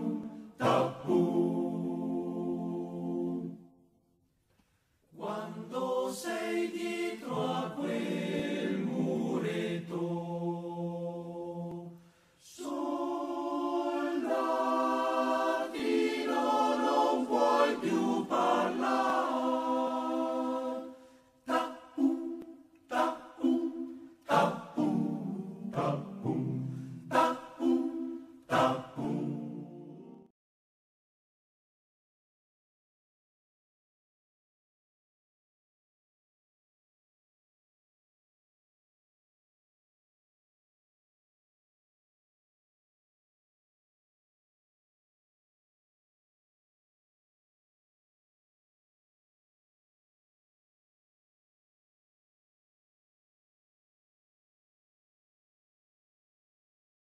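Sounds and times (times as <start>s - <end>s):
choir singing a cappella: 0.0s - 3.8s, 5.1s - 30.3s.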